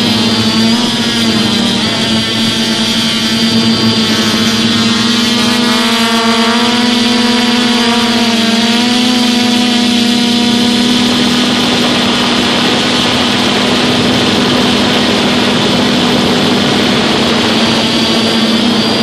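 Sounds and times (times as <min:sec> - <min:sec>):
drone motors buzzing and whining: 0:00.0 - 0:19.0
propeller wash hiss: 0:00.0 - 0:19.0.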